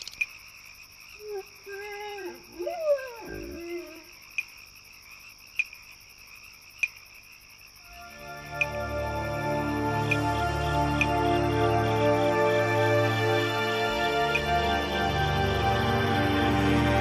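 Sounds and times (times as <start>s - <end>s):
sharp ticks: 5.4s - 5.9s, 6.5s - 7.2s, 8.4s - 8.9s, 10.9s - 11.2s
music: 7.9s - 17.0s.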